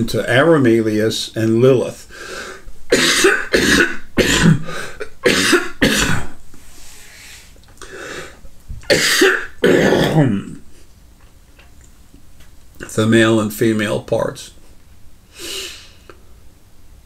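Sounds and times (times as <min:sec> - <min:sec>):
man coughing: 0:02.9 - 0:06.4, 0:08.9 - 0:10.6.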